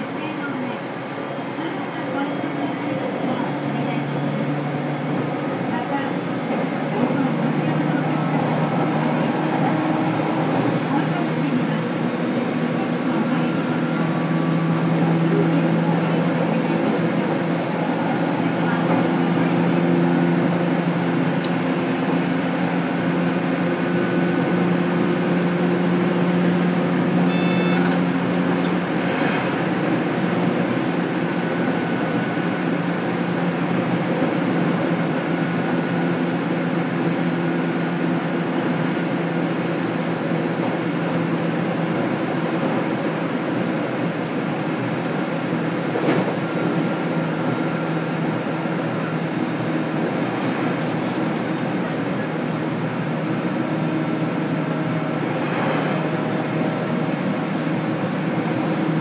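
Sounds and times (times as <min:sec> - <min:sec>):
train wheels rumbling on rails: 0:00.0 - 0:59.0
traction motor hum: 0:06.5 - 0:32.8.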